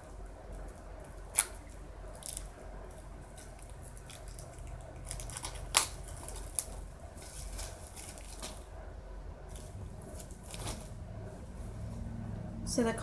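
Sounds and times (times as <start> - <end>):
papery rustling and scraping: 3.2 - 8.7, 9.5 - 11.0.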